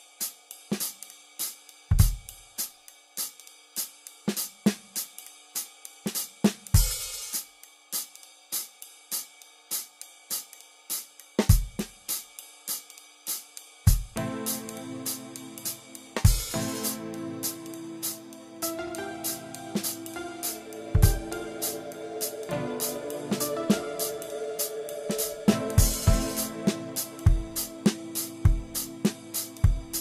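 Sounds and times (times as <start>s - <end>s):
hi-hat rhythm: 0.0s - 30.0s
bass and chords: 16.5s - 30.0s
held synth tones: 18.6s - 30.0s.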